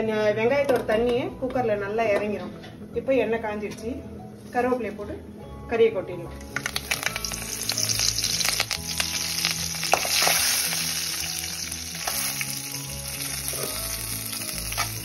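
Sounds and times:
leaves sizzling in hot oil: 6.5 - 15.0.

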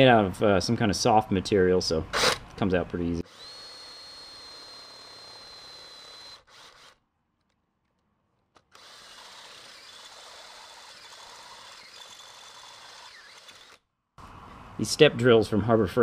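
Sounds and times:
drill whining through plastic: 2.2 - 2.4, 3.2 - 7.0, 8.6 - 13.8.

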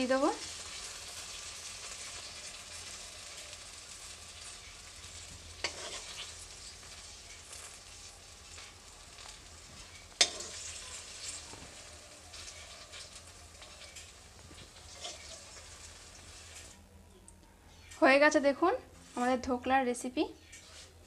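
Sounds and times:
syrup sizzling: 0.0 - 16.8.

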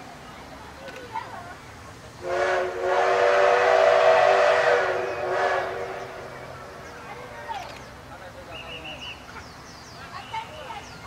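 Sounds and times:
steam locomotive whistle: 2.2 - 6.3.

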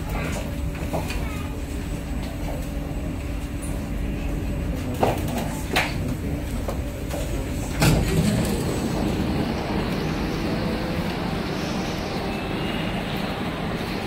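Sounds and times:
train rumbling and hissing: 0.0 - 14.0.

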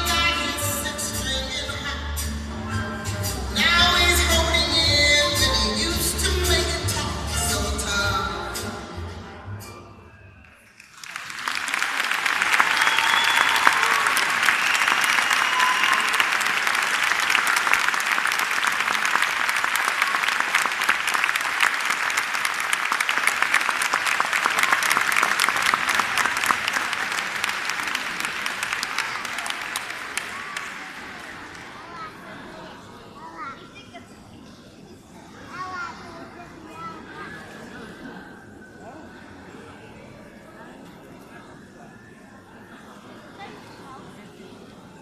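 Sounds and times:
audience applause: 10.8 - 32.2.

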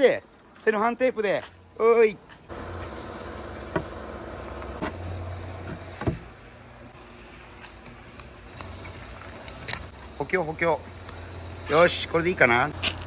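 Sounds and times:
construction machinery drone: 2.4 - 12.8.

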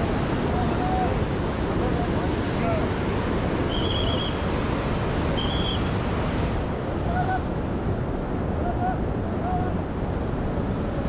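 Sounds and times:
rushing mountain river: 0.0 - 11.0.

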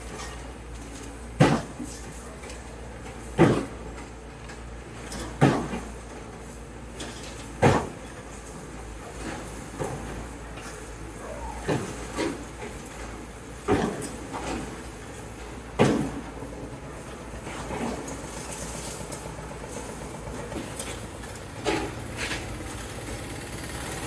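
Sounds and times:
excavator striking concrete: 1.2 - 2.1, 3.1 - 4.2, 5.1 - 6.1, 7.0 - 8.2, 13.6 - 14.9, 15.5 - 16.8, 17.4 - 24.0
diesel machines humming: 5.9 - 24.0.

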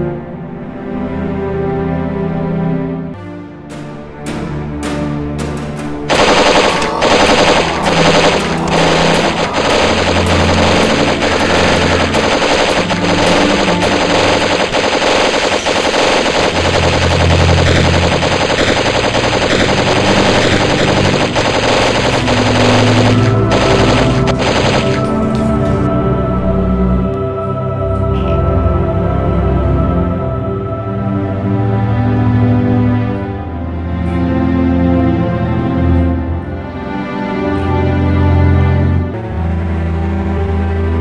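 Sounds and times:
rapid automatic gunfire: 6.1 - 25.4.

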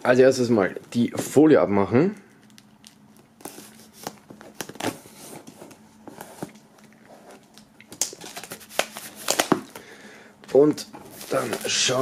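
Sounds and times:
plastic shrink-wrap crinkling: 6.4 - 9.8, 11.1 - 12.0.

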